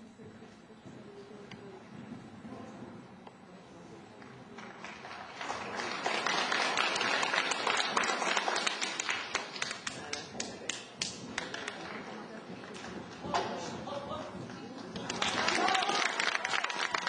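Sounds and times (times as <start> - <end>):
audience applauding: 4.8 - 12.0, 15.0 - 17.0.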